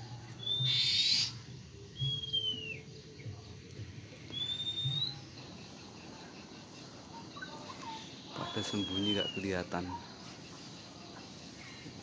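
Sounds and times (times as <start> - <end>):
bird whistled call: 0.4 - 1.4, 2.0 - 2.9, 4.3 - 5.2, 8.3 - 9.6.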